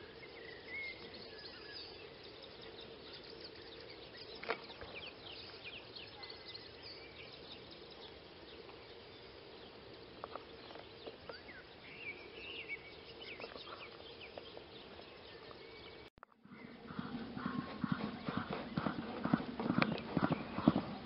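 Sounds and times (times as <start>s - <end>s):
steady hiss: 0.0s - 16.1s
faint low hum: 0.0s - 21.0s
small birds chirping: 0.0s - 21.0s.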